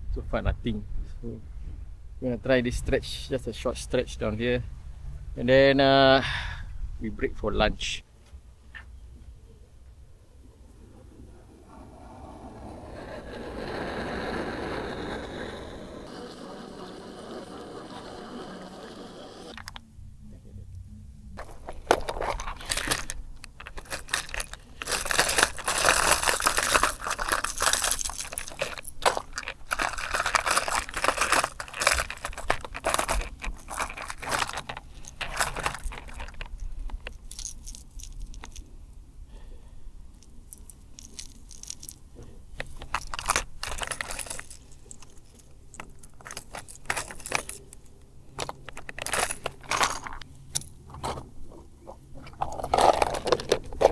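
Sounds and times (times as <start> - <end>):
fishing lures rattling in tackle box: 21.4 - 38.6, 42.6 - 50.8, 52.3 - 53.9.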